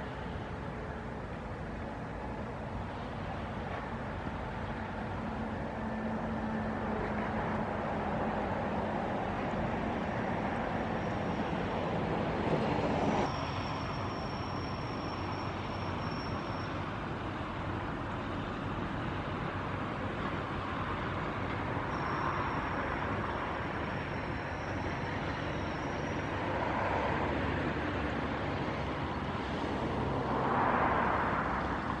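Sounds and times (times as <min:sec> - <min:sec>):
distant engines and traffic rumble: 0:00.0 - 0:32.0
faint high whine: 0:13.0 - 0:18.7, 0:21.7 - 0:27.1.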